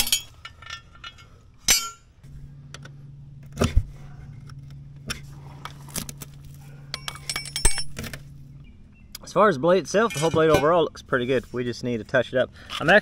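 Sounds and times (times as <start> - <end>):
steady low hum: 0.0 - 13.0
metal tool clinks and knocks: 6.9 - 8.2, 10.0 - 10.7.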